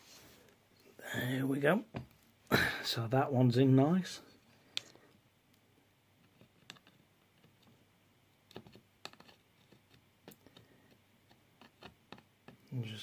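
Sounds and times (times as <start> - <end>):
faint clicks and taps: 6.2 - 7.8, 8.5 - 12.8.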